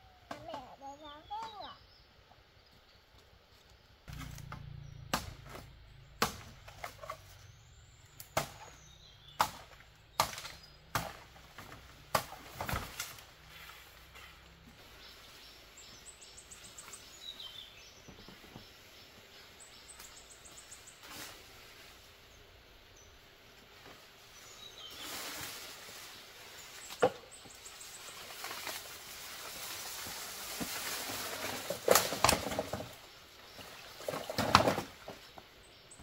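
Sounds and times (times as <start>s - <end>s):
bamboo cracking: 4.0s - 7.2s, 8.1s - 13.3s, 28.3s - 33.0s.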